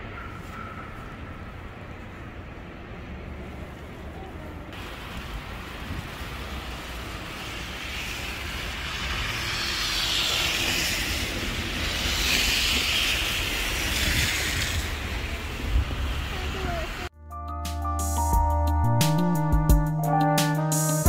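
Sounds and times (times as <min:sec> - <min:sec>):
tyres hissing through snow: 0:04.8 - 0:17.1.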